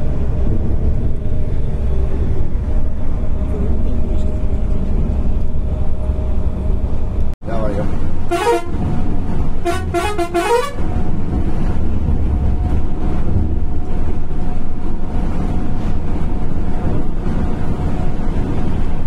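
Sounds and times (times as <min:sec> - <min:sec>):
vehicle horn stepped notes: 0:08.3 - 0:08.8, 0:09.6 - 0:10.8.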